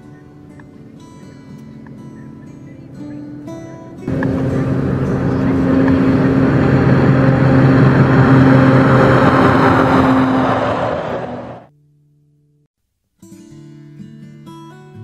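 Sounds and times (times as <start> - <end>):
road noise: 4.1 - 11.7
truck diesel engine drone: 4.1 - 11.7.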